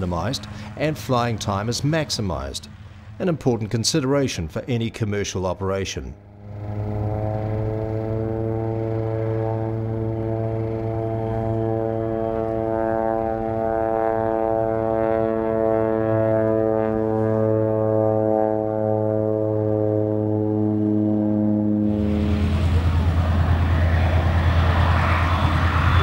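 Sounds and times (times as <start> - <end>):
turboprop plane engine droning: 0.0 - 26.0.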